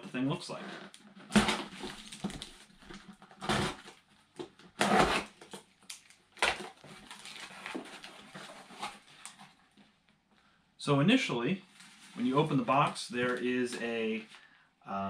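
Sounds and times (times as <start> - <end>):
cardboard flaps scraping: 0.5 - 5.6, 6.4 - 9.6
packing tape slit and torn: 4.8 - 7.8.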